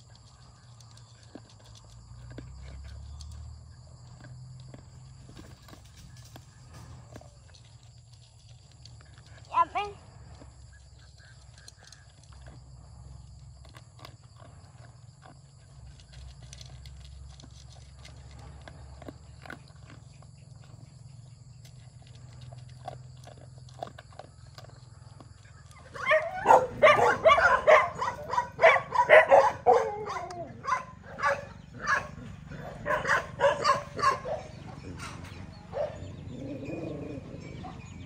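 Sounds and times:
dog crunching kibble from metal pan: 0:00.0 - 0:31.0
high-pitched dog calls: 0:25.8 - 0:32.1.

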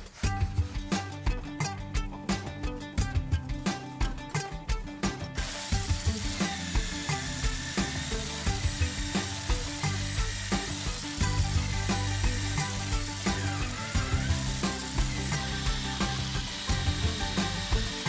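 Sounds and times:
background music with steady beat: 0:00.0 - 0:18.0
electric drill boring into wood: 0:05.4 - 0:18.0.

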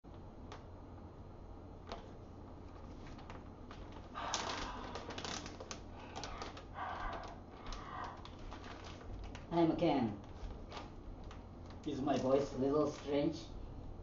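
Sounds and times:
plastic bag crinkling: 0:02.6 - 0:13.2.

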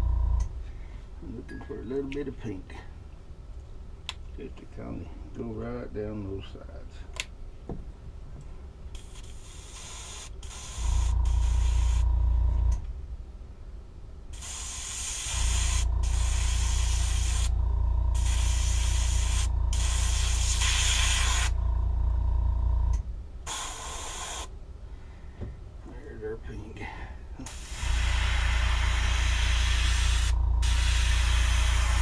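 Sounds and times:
airbrush spraying hiss: 0:09.0 - 0:12.1, 0:14.4 - 0:17.5, 0:18.1 - 0:21.6, 0:23.5 - 0:24.5, 0:27.4 - 0:32.0
air compressor humming: 0:09.0 - 0:12.9, 0:14.3 - 0:24.6, 0:27.4 - 0:32.0.

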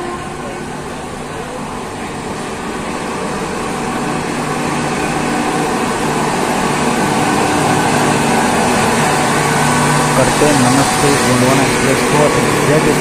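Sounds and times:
locomotive cooling blowers humming: 0:00.0 - 0:13.0
trains running on tracks: 0:00.0 - 0:13.0.

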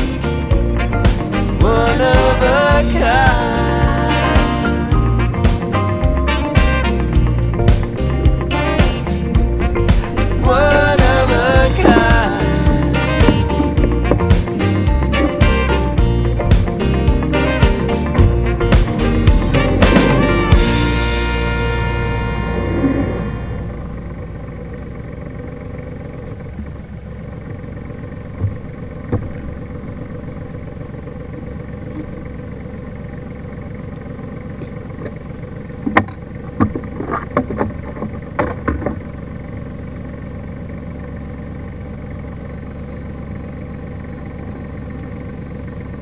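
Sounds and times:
boat engine idling: 0:00.0 - 0:46.0.

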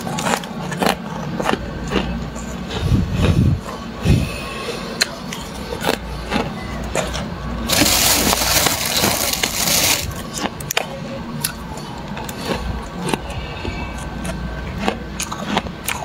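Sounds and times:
frost cracking and crunching: 0:07.7 - 0:10.8.

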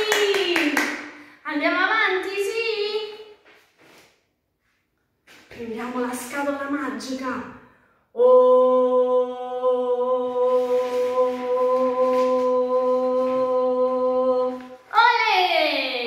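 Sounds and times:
woman singing long note: 0:08.2 - 0:14.7.

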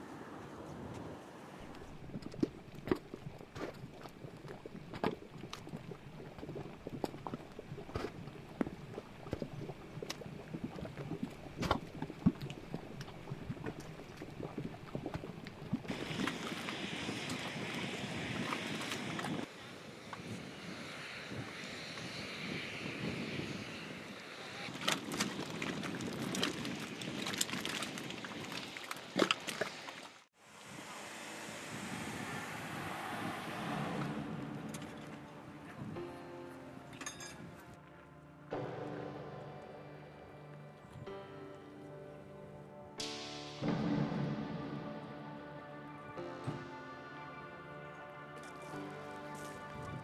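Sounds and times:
mud plopping and popping: 0:01.7 - 0:19.4, 0:24.8 - 0:30.1
steady rushing noise: 0:30.4 - 0:36.5.

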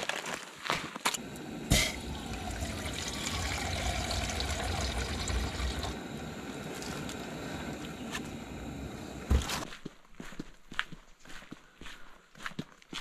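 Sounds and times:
gas stove hissing: 0:01.2 - 0:09.7
water pouring into a pot: 0:01.7 - 0:06.2.

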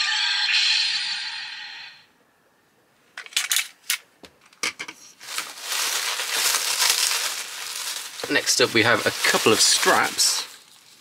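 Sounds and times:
plastic toys clicking and knocking: 0:03.2 - 0:05.0
crinkling rustle: 0:05.1 - 0:11.0.

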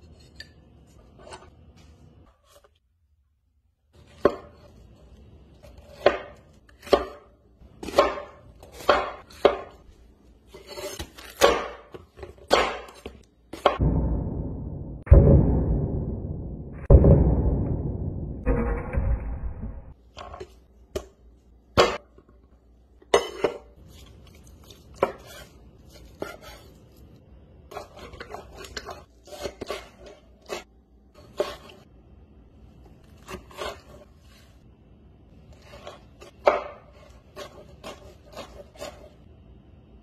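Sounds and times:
knife chopping on wooden board: 0:05.8 - 0:09.8, 0:10.7 - 0:13.8, 0:35.7 - 0:39.1.

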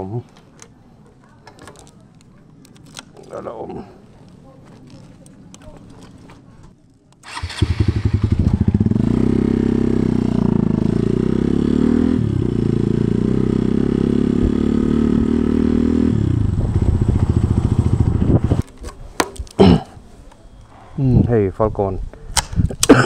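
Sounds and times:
motorcycle engine running loud: 0:07.6 - 0:18.6.

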